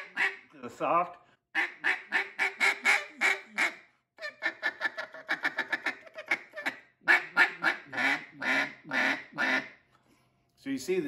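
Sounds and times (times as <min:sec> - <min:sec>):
duck call quacks: 0:00.0 - 0:00.6, 0:01.6 - 0:09.8.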